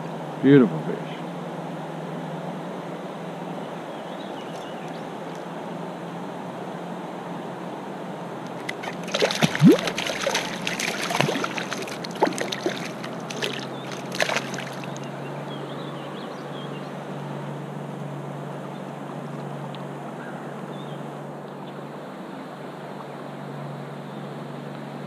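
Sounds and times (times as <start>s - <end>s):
soft wash of water: 1.2s - 15.6s, 16.2s - 25.0s
fish splashing in water: 8.5s - 15.2s.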